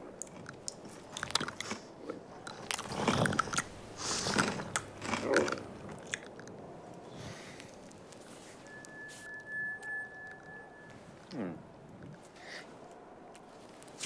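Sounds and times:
camel chewing: 0:00.0 - 0:08.6.

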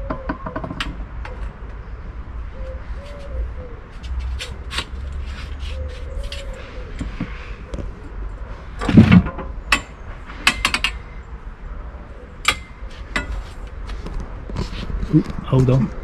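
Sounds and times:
metal bars clanking and clicking: 0:08.8 - 0:11.0, 0:12.4 - 0:13.4.

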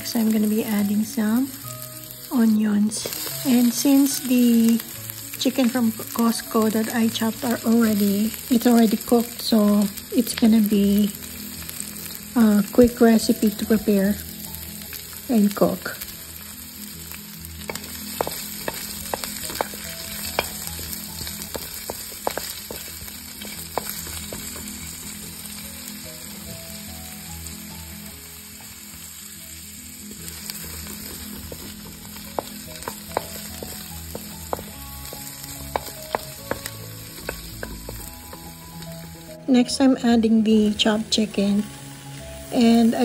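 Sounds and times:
onion and garlic sizzling in oil: 0:00.0 - 0:43.0
wooden spatula scraping wok: 0:01.9 - 0:09.2, 0:17.6 - 0:25.6, 0:30.1 - 0:39.4.

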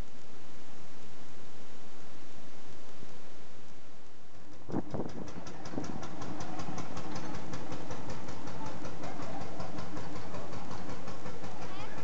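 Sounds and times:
tractor engine pulsing: 0:04.3 - 0:12.0.

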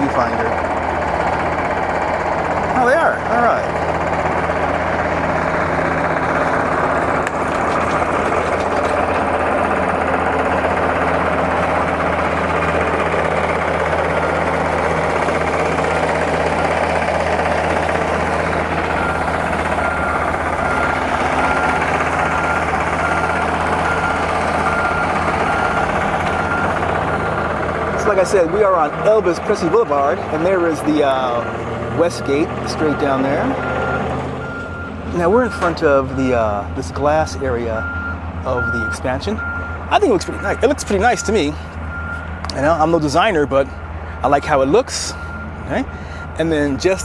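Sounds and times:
excavator diesel engine running: 0:00.0 - 0:47.0
warning beeper: 0:37.2 - 0:42.2.

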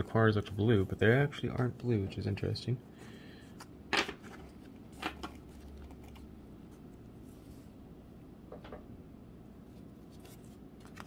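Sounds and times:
playing cards clicking and snapping: 0:10.2 - 0:11.0.

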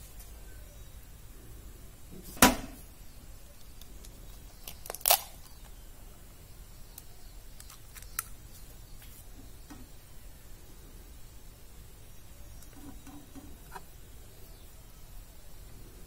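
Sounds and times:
faint eggshell clicks: 0:06.9 - 0:08.6.

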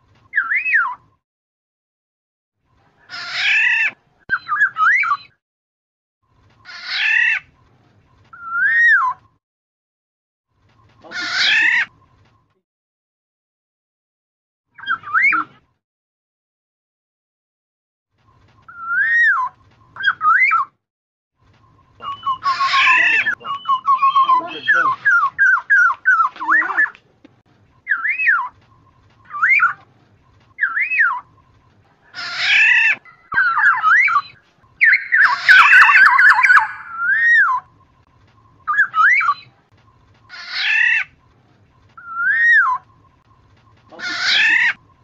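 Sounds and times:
bird fluty whistles and raspy calls: 0:00.3 - 0:01.1, 0:03.0 - 0:05.4, 0:08.4 - 0:09.3, 0:14.8 - 0:15.6, 0:22.0 - 0:26.9, 0:27.8 - 0:28.6, 0:30.6 - 0:31.4, 0:32.1 - 0:37.7, 0:38.5 - 0:39.6, 0:42.0 - 0:43.0.

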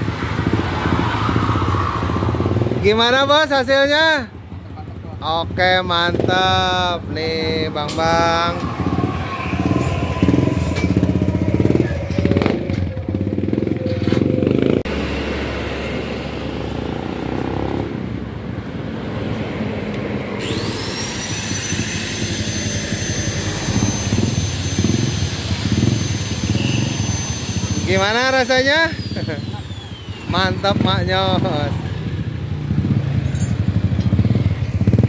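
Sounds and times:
motorcycle engine revving: 0:00.0 - 0:03.1, 0:04.5 - 0:18.4, 0:20.3 - 0:35.0
high steady whine: 0:07.3 - 0:16.8, 0:20.4 - 0:31.8.

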